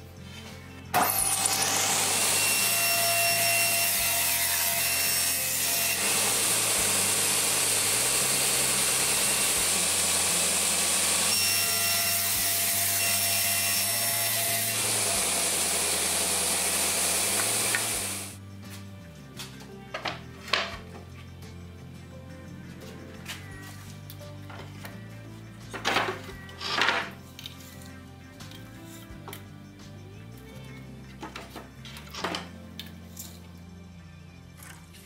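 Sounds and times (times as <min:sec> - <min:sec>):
table saw cutting wood: 0:01.0 - 0:18.4.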